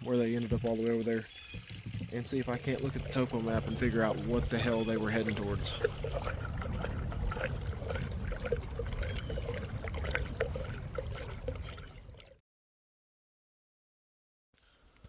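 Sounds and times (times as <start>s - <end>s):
water lapping against boat hull: 0.0s - 12.4s
low rumble: 2.4s - 12.3s.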